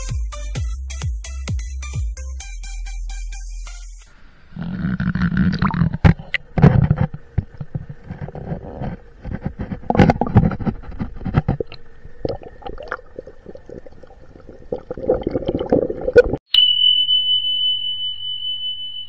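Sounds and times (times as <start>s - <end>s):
water gurgling and splashing: 5.0s - 6.6s, 9.6s - 16.4s
high beep tone: 16.5s - 19.0s.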